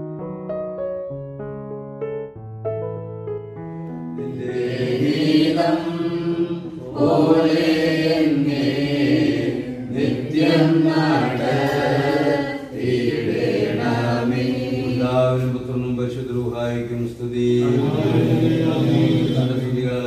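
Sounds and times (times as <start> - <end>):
voices chanting a prayer: 4.2 - 20.0.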